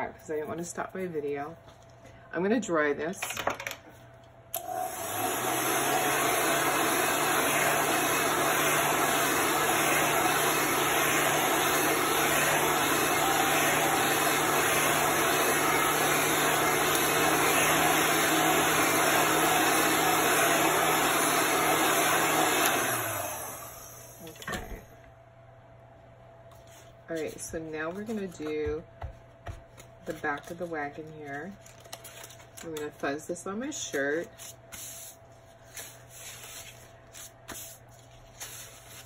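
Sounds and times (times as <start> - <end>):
hot-air dryer whirring: 4.5 - 25.0.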